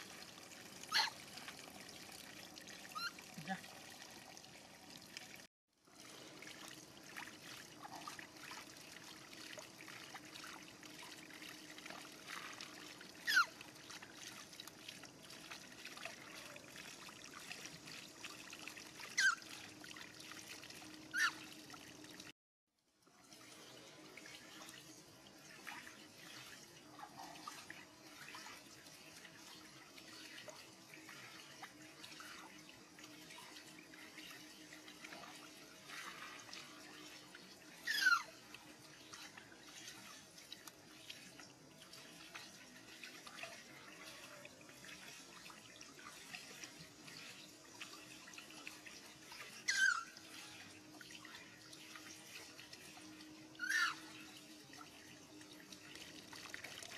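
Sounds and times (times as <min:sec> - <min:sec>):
water trickling onto ground: 0:00.0 - 0:22.3, 0:38.4 - 0:49.5, 0:50.2 - 0:56.9
hose water into metal basin: 0:00.0 - 0:56.9.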